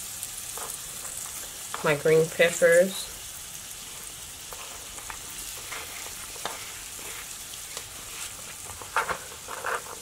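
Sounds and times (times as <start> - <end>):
roux sizzling in skillet: 0.0 - 10.0
vegetables scraped into pan: 3.9 - 10.0.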